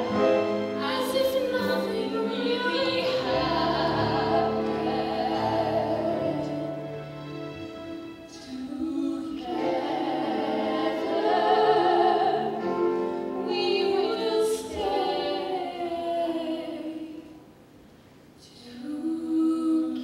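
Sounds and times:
two women singing: 0.8 - 6.6, 8.3 - 12.7, 13.4 - 17.4, 18.4 - 20.0.

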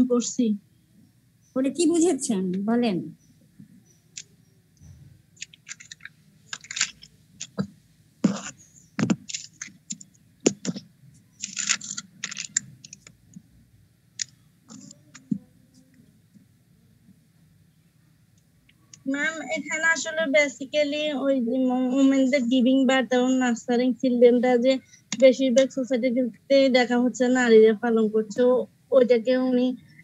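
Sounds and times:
faint low hum: 0.0 - 30.0
computer keyboard typing: 5.4 - 10.8, 11.4 - 13.1.

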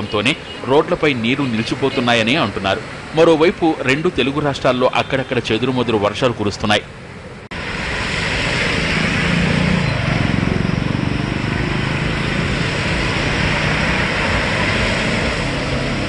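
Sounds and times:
vehicles driving through water: 0.0 - 16.0
heavy rain hissing: 7.6 - 16.0.

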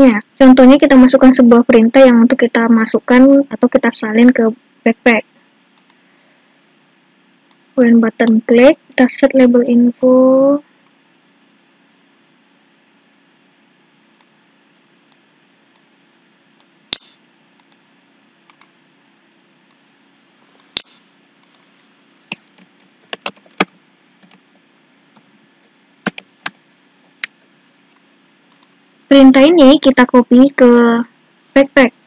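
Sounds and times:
faint steady hum: 0.0 - 32.0
mouse clicks: 5.7 - 6.0, 16.6 - 17.8, 20.6 - 21.6
keyboard keystrokes: 22.3 - 24.4, 26.0 - 27.4.

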